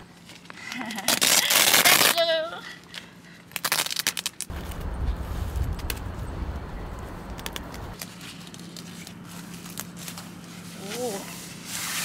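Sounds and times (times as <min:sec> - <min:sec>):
low rumble: 0:04.5 - 0:08.0.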